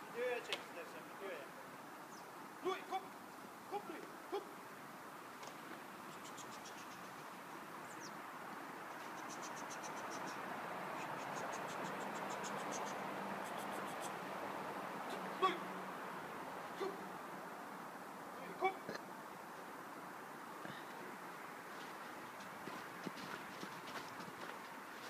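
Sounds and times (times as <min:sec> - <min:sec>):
insects chirping clicks: 0:11.0 - 0:14.2.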